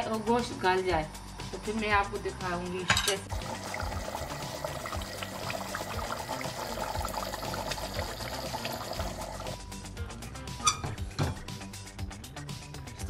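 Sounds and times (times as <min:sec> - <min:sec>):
curry bubbling and popping: 0:03.3 - 0:09.6.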